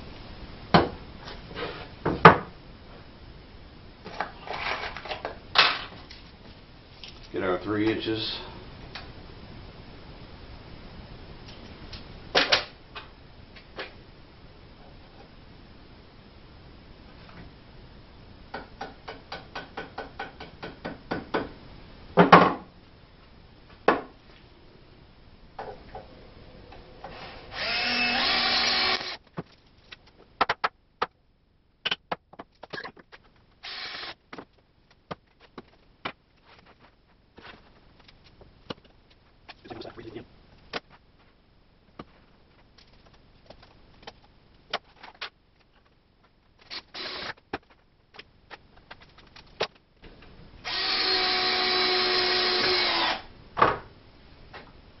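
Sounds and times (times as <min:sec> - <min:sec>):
cordless drill running: 0:27.1 - 0:29.2, 0:33.6 - 0:34.2, 0:46.7 - 0:47.4, 0:50.6 - 0:53.3.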